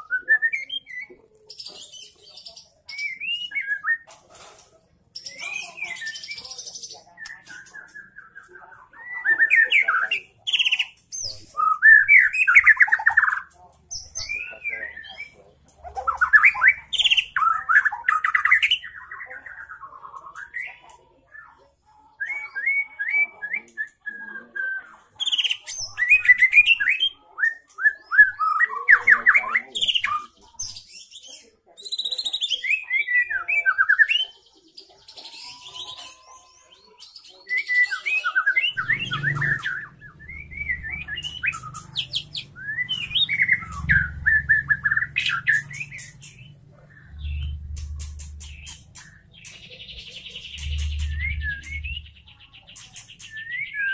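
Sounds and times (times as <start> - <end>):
songbird singing trills: 0.0 - 4.1, 5.1 - 53.9
low rumble: 50.2 - 52.4.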